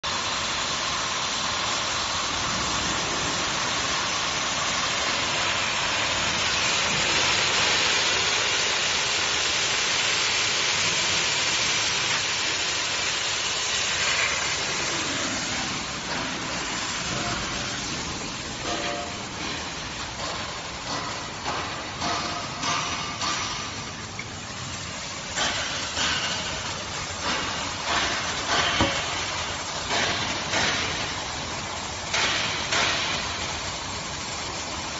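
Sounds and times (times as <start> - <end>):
cutting torch gas hiss: 0.1 - 23.9, 24.5 - 34.9.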